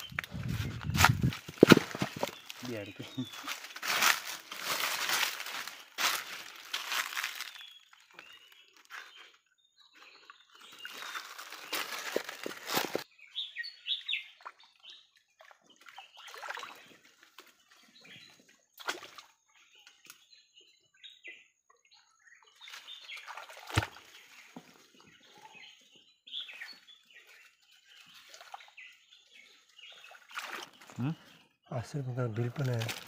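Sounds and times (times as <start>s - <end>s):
water sloshing in stream: 0.0s - 8.3s, 14.2s - 17.8s, 18.7s - 19.4s, 22.5s - 25.1s, 27.8s - 31.0s
birds chirping: 0.0s - 18.7s, 19.5s - 33.0s
sharp knocks on stones: 1.2s - 2.4s.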